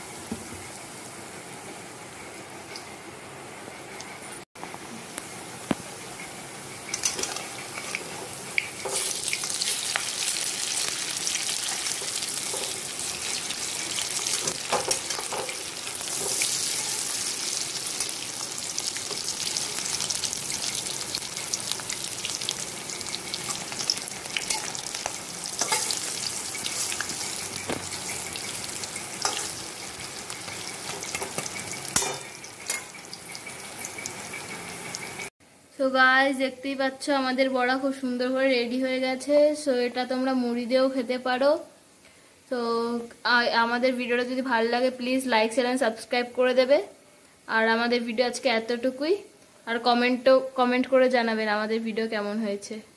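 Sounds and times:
fritters sizzling in hot oil: 5.1s - 35.3s.

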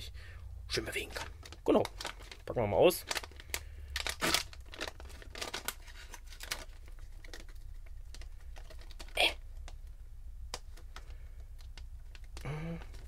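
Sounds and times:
packet rustle: 0.9s - 13.0s
plastic packet crinkling: 0.9s - 13.0s.

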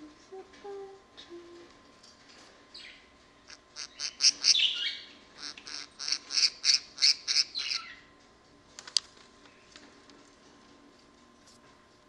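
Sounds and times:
budgerigar chirping: 2.8s - 8.0s.

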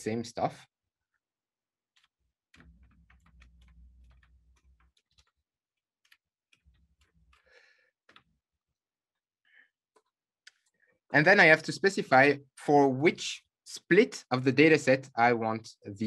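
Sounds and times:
faint keyboard typing: 1.8s - 8.4s, 9.9s - 10.8s.

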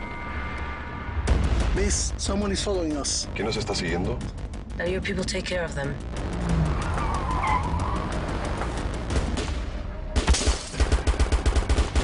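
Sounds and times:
separate gunshots in quick succession: 10.2s - 12.0s
volley of gunshots: 10.2s - 12.0s.

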